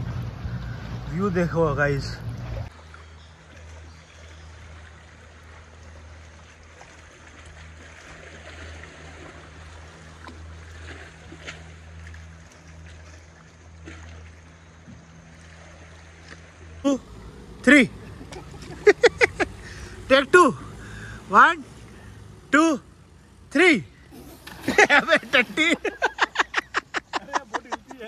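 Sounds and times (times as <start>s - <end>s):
seawater lapping and trickling: 0.0s - 28.0s
steady low hum: 0.0s - 28.0s
small water splashes and drips: 2.0s - 16.8s.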